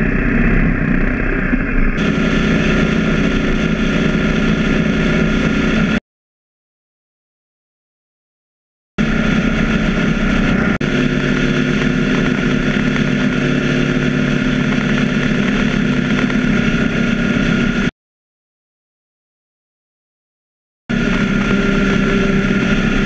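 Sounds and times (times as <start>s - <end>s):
motorcycle engine cruising: 0.0s - 6.0s, 9.0s - 17.9s, 20.9s - 23.0s
wind and road noise: 0.0s - 6.0s, 9.0s - 17.9s, 20.9s - 23.0s.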